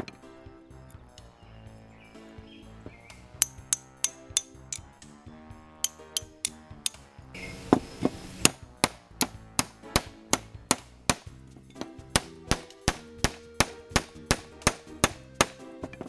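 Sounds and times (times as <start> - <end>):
background music: 0.0 - 16.0
hammer striking metal wrench: 3.4 - 5.0, 5.8 - 7.0.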